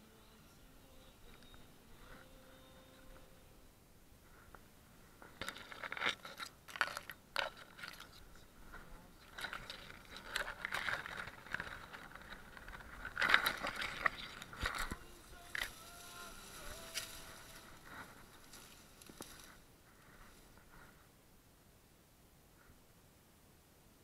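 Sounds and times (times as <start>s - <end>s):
scraping and crunching: 4.3s - 21.0s.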